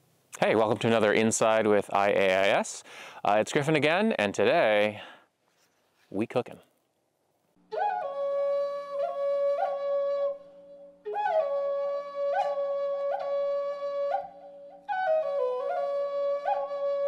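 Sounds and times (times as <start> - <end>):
solo flute melody: 7.6 - 17.0.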